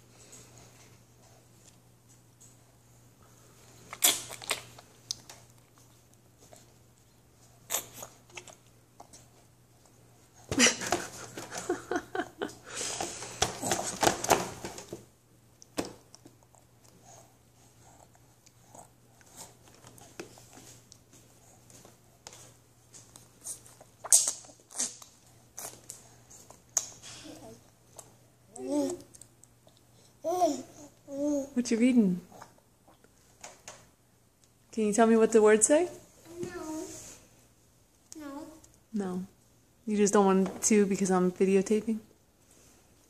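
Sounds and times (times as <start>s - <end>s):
baby sucking and smacking: 3.9s - 6.7s, 7.6s - 9.4s, 23.1s - 27.0s.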